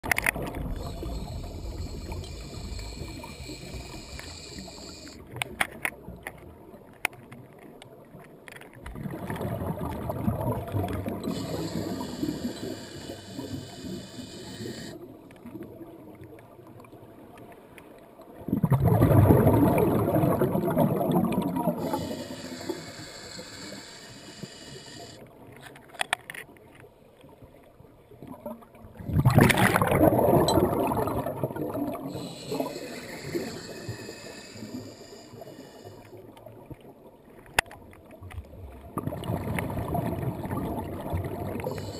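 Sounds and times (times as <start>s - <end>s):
underwater water noise: 0.0s - 41.9s
bubbling: 8.9s - 15.0s, 18.5s - 25.1s, 29.0s - 35.5s, 38.9s - 41.9s.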